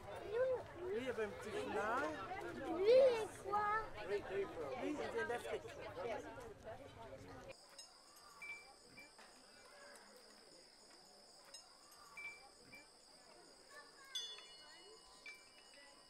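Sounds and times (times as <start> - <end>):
crickets trilling: 7.6 - 16.0
metallic chime: 14.1 - 16.0.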